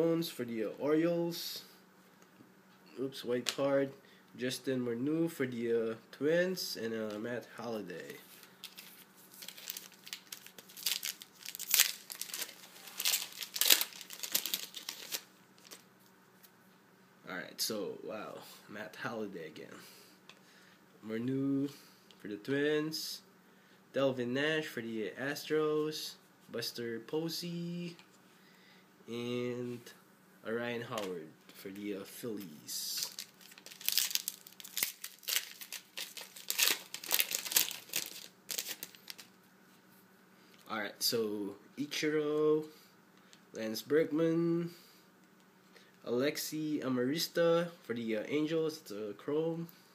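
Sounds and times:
wrapper tearing and crinkling: 8.6 - 15.8, 33.0 - 39.3.

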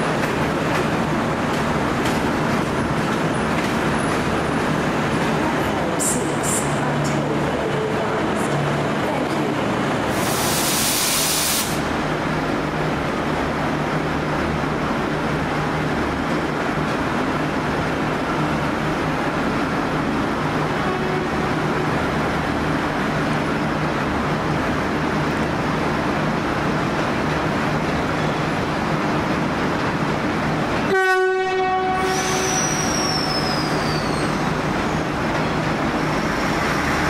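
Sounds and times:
air hiss burst: 10.1 - 11.9.

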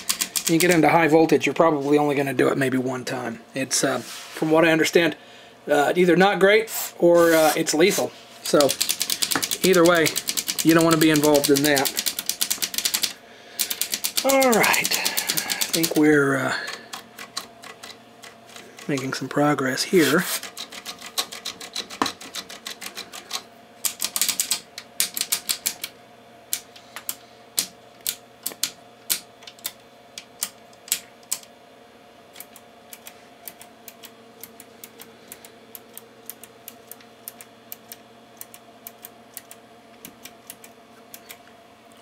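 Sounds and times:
oscilloscope switches clicking: 26.5 - 31.5, 32.3 - 41.4.

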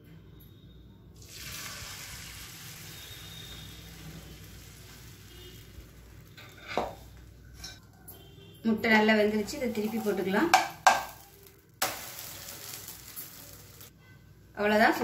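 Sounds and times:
batter sizzling in frying pan: 1.2 - 7.6, 9.2 - 13.9.

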